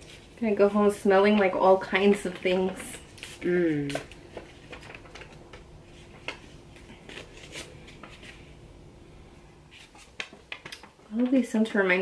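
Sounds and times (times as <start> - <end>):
paper rustling: 1.2 - 8.5, 9.7 - 10.9.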